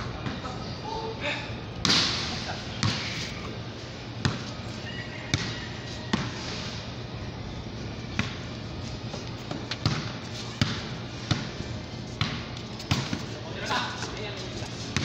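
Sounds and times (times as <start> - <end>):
ball bouncing on concrete: 5.3 - 6.4, 9.5 - 11.5, 12.2 - 13.3.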